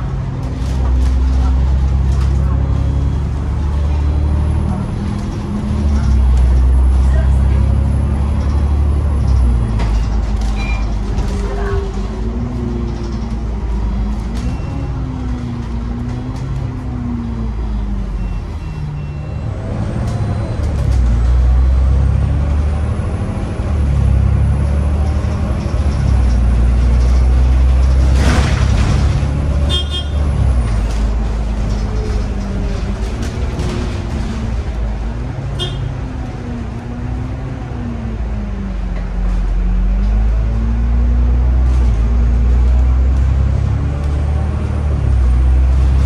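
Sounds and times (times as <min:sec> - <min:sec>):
bus diesel engine from inside: 0:00.0 - 0:46.0.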